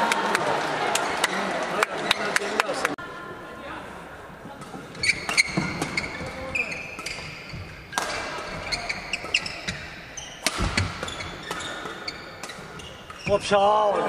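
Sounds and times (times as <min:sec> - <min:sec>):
racket hitting shuttlecock: 0:04.6 - 0:13.3
shoes squeaking on court: 0:04.6 - 0:13.6.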